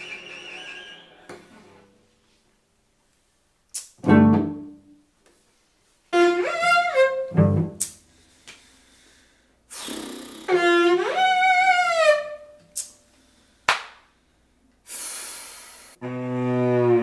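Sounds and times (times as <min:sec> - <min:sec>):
cello being bowed: 0:04.0 - 0:04.9, 0:06.1 - 0:07.8, 0:10.4 - 0:12.6, 0:16.0 - 0:17.0
hiss: 0:09.7 - 0:10.5, 0:14.9 - 0:16.0.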